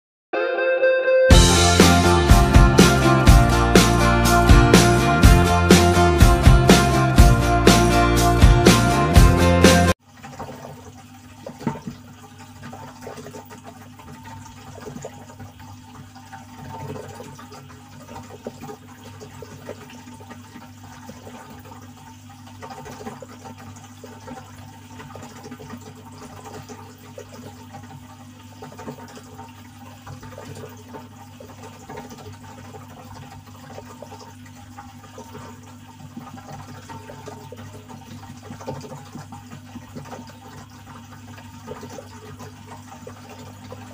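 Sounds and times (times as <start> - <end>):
aquarium water trickling: 9.9 - 43.9.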